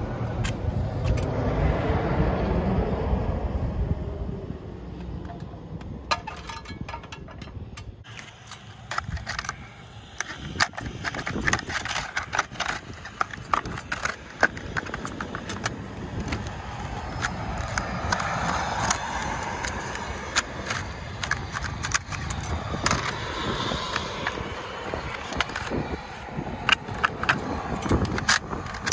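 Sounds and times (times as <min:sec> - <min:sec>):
vehicle passing: 0:00.0 - 0:06.1, 0:15.6 - 0:28.0
plastic tool scraping and clicking: 0:05.0 - 0:28.9.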